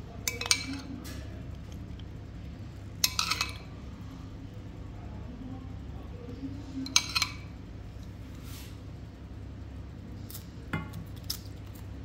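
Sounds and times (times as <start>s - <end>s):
steady low hum: 0.0s - 12.0s
metal spoon clinking: 0.2s - 0.9s, 3.0s - 3.7s, 6.8s - 7.5s.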